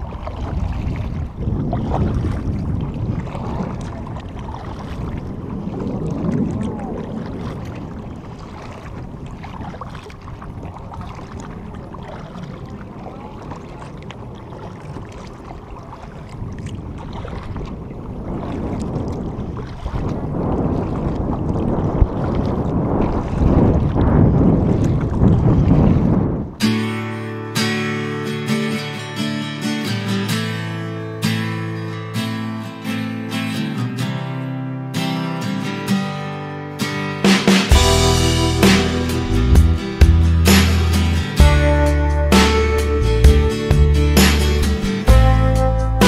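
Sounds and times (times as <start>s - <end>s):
wind buffeting microphone: 0.0s - 26.6s
water lapping and splashing: 0.0s - 45.2s.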